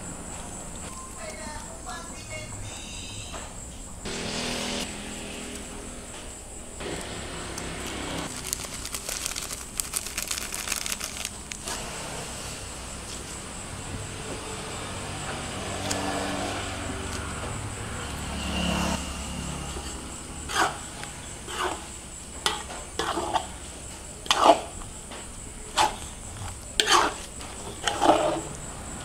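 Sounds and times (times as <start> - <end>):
utensil scraping and knocking in pot: 20.5 - 23.6, 24.2 - 24.8, 25.7 - 28.6.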